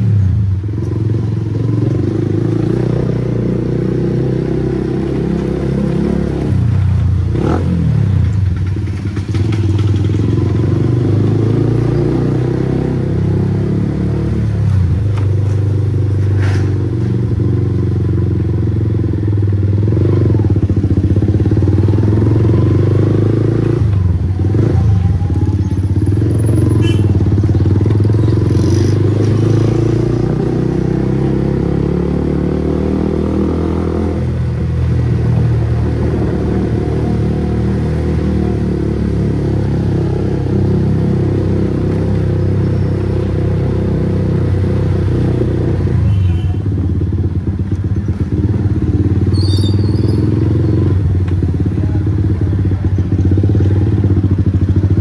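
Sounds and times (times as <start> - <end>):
loud motorcycle exhaust: 0.0 - 55.0.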